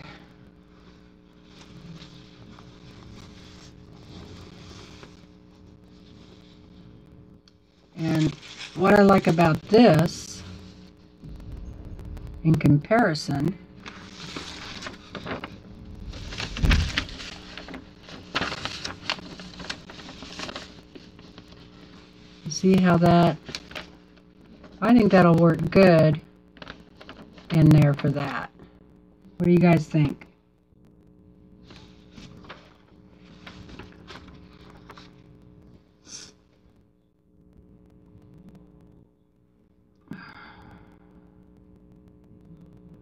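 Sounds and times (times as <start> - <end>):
faint steady hum: 0.0 - 43.0
fabric rustling: 13.8 - 22.2.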